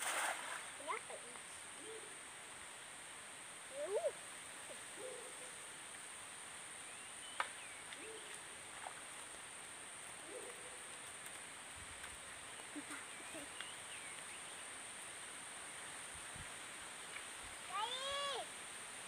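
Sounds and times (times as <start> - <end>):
low hooting animal calls: 10.2 - 11.0.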